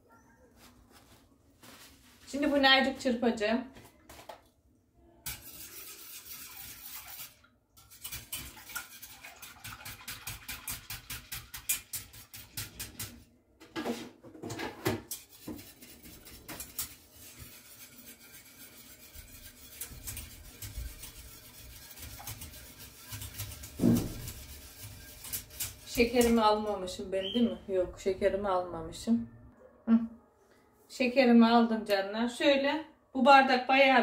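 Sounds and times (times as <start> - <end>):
whisk clattering against metal pot: 5.3 - 13.2, 15.0 - 26.6.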